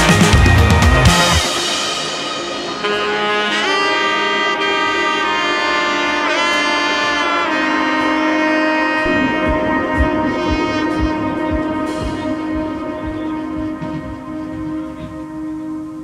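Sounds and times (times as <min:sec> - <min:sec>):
steady drum beat: 0:00.0 - 0:03.1, 0:09.0 - 0:15.8
lead melody with bending notes: 0:00.0 - 0:16.0
sustained accompaniment: 0:00.0 - 0:16.0.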